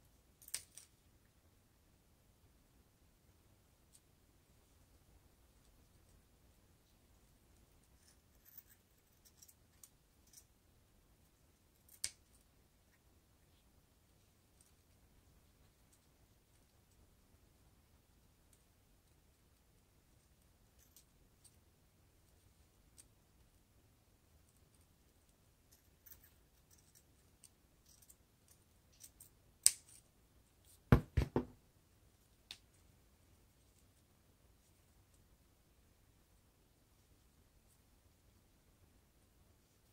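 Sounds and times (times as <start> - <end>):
loud knocks: 30.9 - 31.6.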